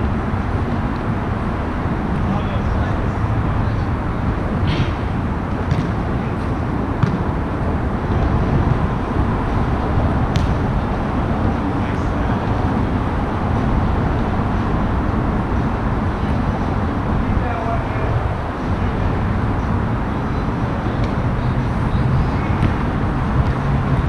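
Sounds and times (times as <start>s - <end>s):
road traffic rumble: 0.0s - 24.0s
volleyball knocks: 5.7s - 6.0s.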